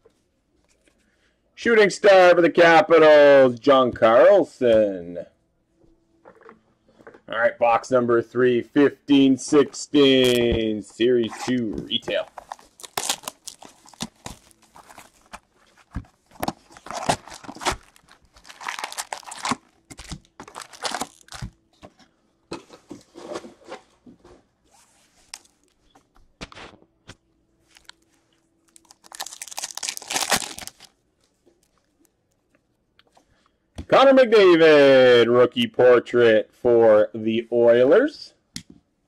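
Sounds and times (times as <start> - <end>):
foil packs tearing and crinkling: 12.1 - 21.6, 28.7 - 30.9.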